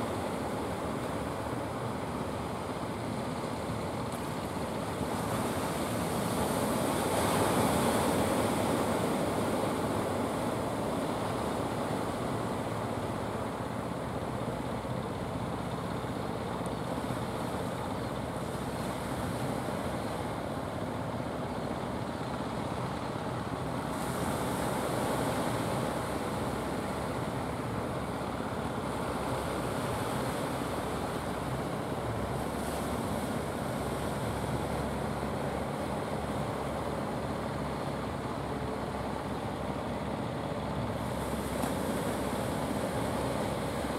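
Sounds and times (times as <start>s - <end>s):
boat engines droning: 0.0s - 43.9s
surf washing: 0.0s - 43.9s.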